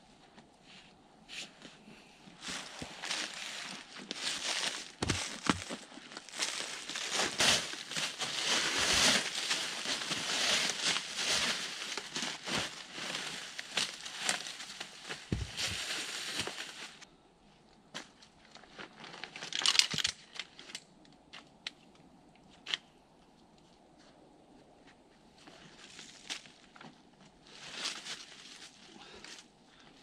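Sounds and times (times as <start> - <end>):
dry leaves crunching and rustling: 2.4 - 17.0.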